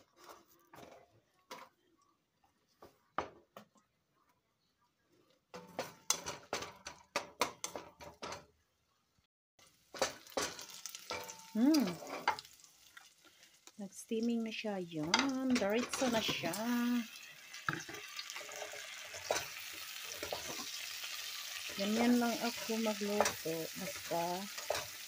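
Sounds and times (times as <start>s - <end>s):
wooden spatula scraping metal pot: 0.0s - 1.8s, 10.0s - 12.4s, 15.0s - 25.0s
garlic sizzling in butter: 9.6s - 25.0s.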